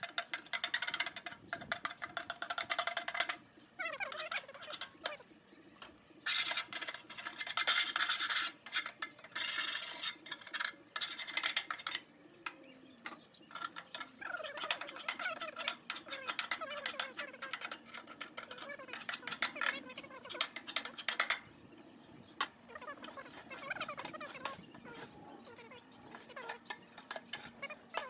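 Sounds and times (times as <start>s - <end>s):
metal spatula scraping grease: 6.2s - 12.0s, 13.3s - 21.4s, 22.8s - 28.0s
metal sliding squeaks: 6.2s - 12.1s, 13.1s - 21.5s, 22.6s - 28.0s.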